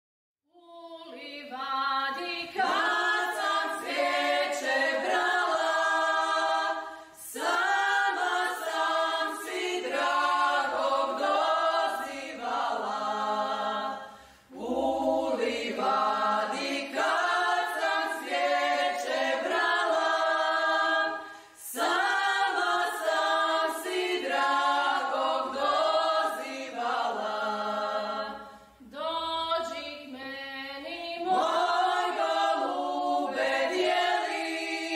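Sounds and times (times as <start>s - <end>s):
choir singing a cappella: 0.6s - 34.9s.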